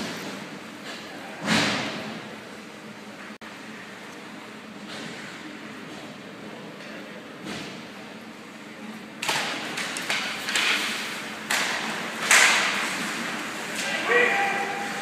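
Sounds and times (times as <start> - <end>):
skates scraping on ice: 10.0 - 15.0.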